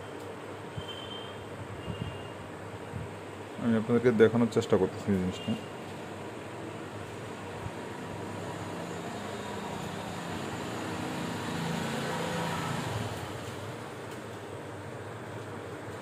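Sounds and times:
road traffic rumble: 4.9 - 15.8
vehicle passing: 8.2 - 13.5.

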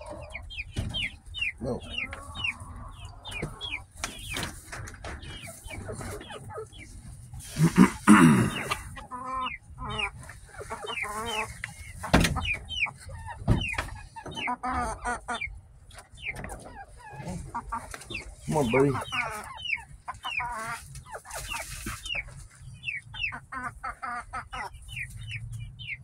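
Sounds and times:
chickens clucking and chirping: 0.0 - 26.0
loud chicken call: 7.5 - 10.1.

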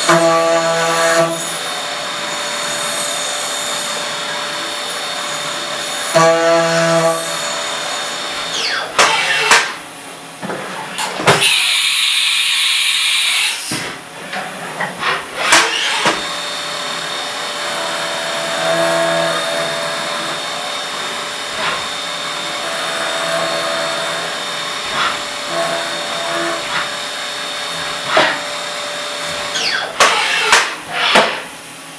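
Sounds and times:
milling spindle high whine: 15.4 - 31.2.

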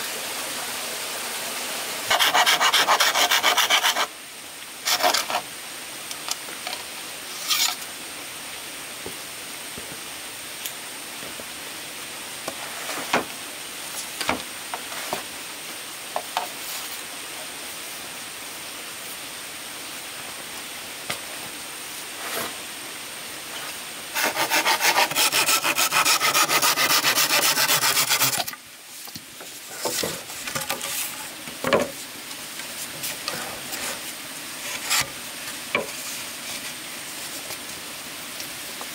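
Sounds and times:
hand saw cutting bamboo: 2.1 - 4.1, 4.8 - 5.4, 24.1 - 28.6
light knocks and scraping of wood: 14.0 - 15.3, 27.4 - 32.0.

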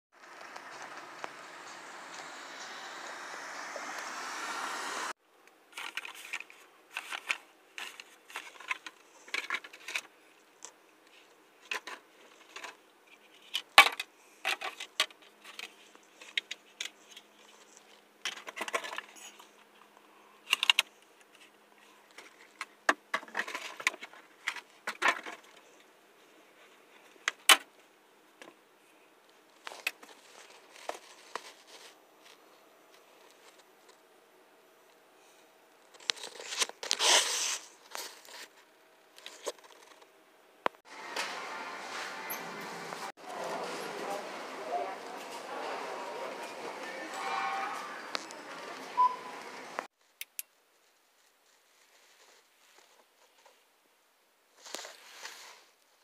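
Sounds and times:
charging cable clicking and rustling: 35.8 - 37.3.

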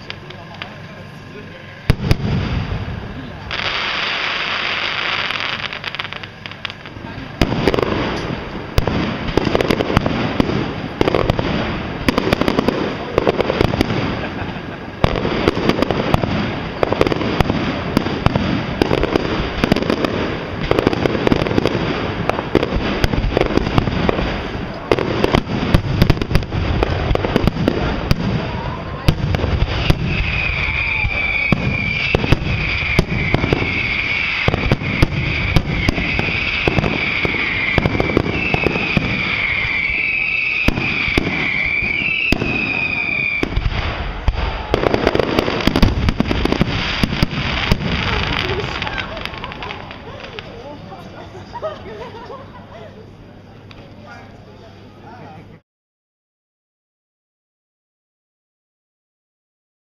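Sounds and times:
people's voices: 0.0 - 2.0, 2.9 - 3.7, 6.0 - 10.0, 12.2 - 19.1, 26.9 - 34.7, 47.7 - 55.6
fireworks bursting and crackling: 0.0 - 54.1
high wavering whistle: 29.8 - 43.6.

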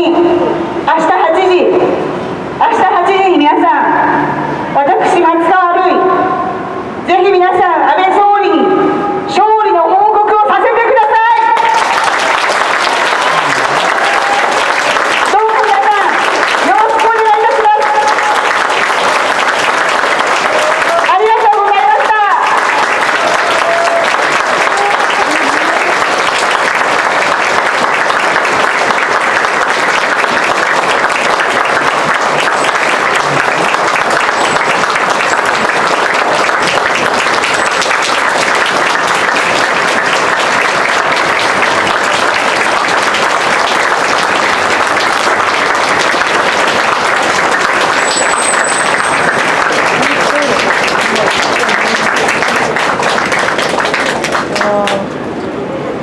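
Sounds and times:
crowd applauding: 11.4 - 55.1.

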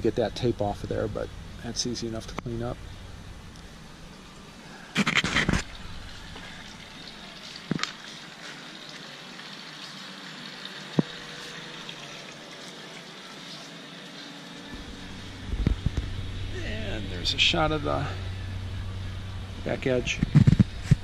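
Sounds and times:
faint outdoor hiss: 0.0 - 21.0
camera handling rubbing: 5.0 - 5.7.

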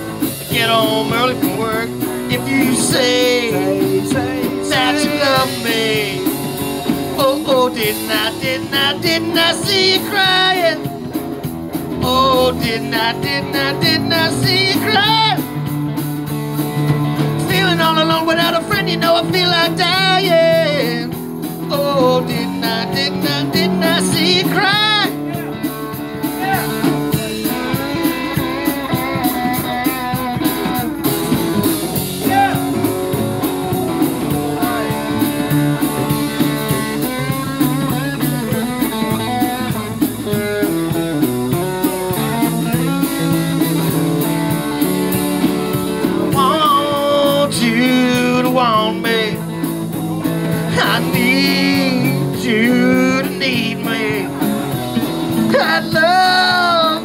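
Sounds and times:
guitar strumming rhythm: 0.0 - 57.0
person singing: 0.2 - 11.0, 11.9 - 15.5, 17.4 - 30.8, 33.9 - 39.5, 46.0 - 49.7, 50.3 - 57.0.

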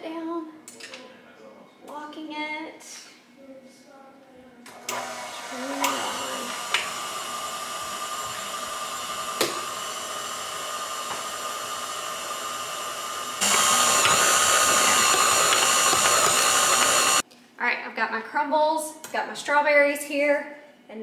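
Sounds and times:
stand mixer motor whine: 4.8 - 17.2.

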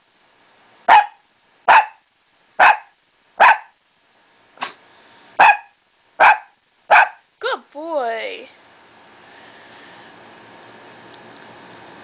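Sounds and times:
small dog barking: 0.9 - 2.0, 2.6 - 3.8, 5.4 - 7.3.

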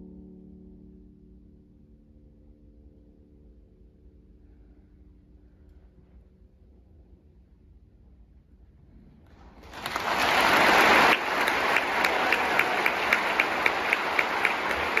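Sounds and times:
audience applause: 9.6 - 15.0
sharp rhythmic claps: 9.6 - 15.0.

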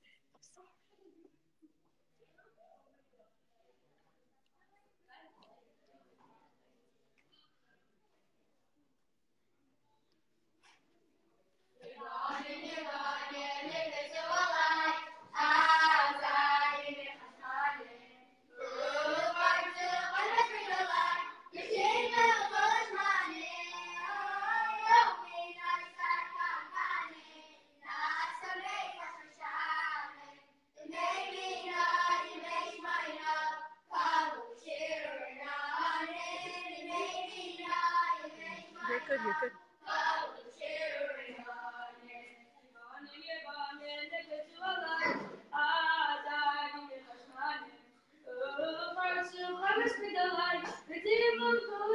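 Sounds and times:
boys' choir singing: 11.8 - 18.0, 18.6 - 27.1.

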